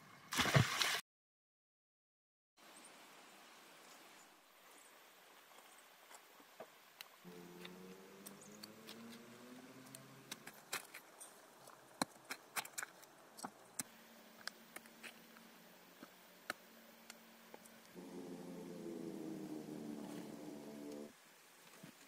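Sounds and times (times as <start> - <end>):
faint low hum: 13.6 - 21.1.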